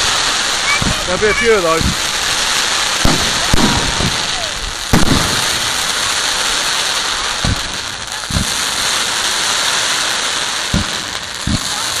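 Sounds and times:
firework shells booming: 0:00.0 - 0:12.0
fireworks crackling: 0:00.0 - 0:12.0.

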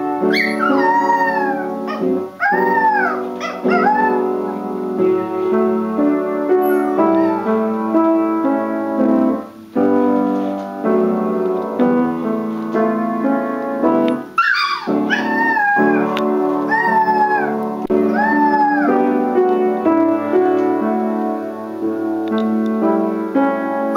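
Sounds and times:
piano chords: 0:00.0 - 0:23.9
puppy howling: 0:00.3 - 0:04.3, 0:06.6 - 0:07.6, 0:14.4 - 0:19.0.

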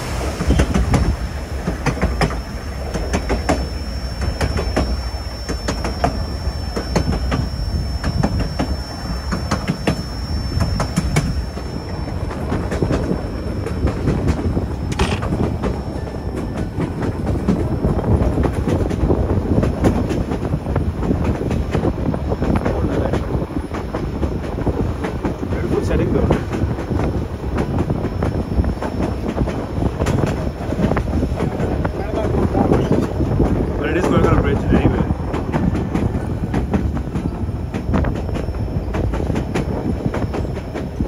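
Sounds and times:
faint high whine: 0:00.0 - 0:18.6, 0:36.1 - 0:41.0
train rolling rumble: 0:00.0 - 0:41.0
wheels clacking over rails: 0:00.0 - 0:41.0.

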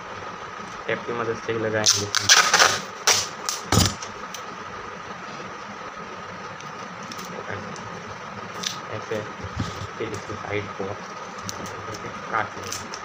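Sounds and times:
faint steady whine: 0:00.0 - 0:13.0
tape crackling when handled: 0:01.8 - 0:03.7, 0:11.0 - 0:13.0
tape ripped off roll: 0:01.9 - 0:04.1.

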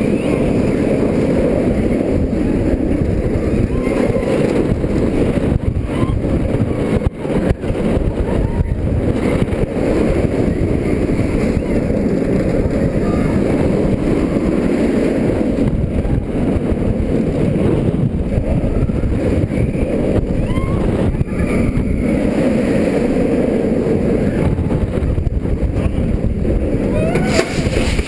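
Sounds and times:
roller coaster on steel track: 0:00.0 - 0:28.0
wind over microphone: 0:00.0 - 0:28.0.

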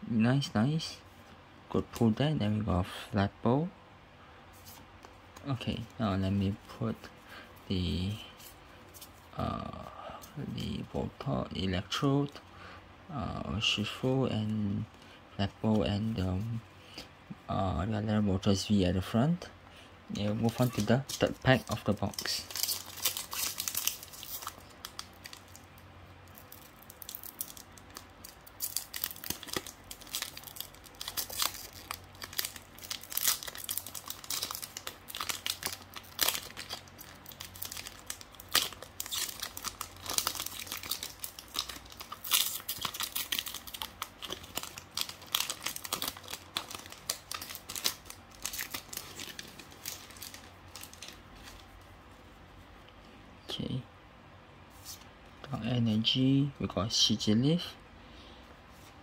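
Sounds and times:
foil wrapper crinkling and tearing: 0:20.2 - 0:51.8.

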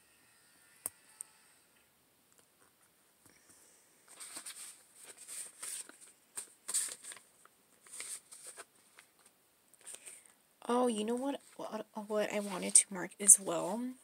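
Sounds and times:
paper rustling and crinkling: 0:04.1 - 0:10.1, 0:12.3 - 0:13.8.

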